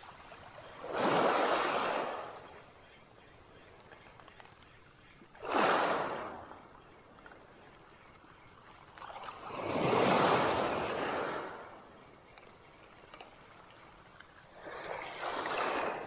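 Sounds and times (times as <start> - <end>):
waves washing on pebble beach: 0.8 - 2.4, 5.4 - 6.5, 9.4 - 11.7.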